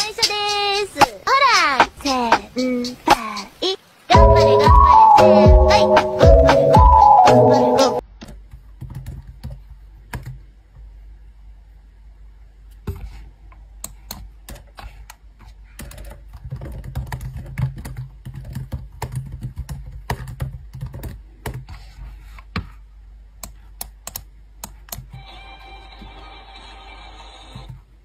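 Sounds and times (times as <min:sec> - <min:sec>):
laptop keyboard typing: 0:08.2 - 0:10.4, 0:15.8 - 0:21.7, 0:23.4 - 0:25.2.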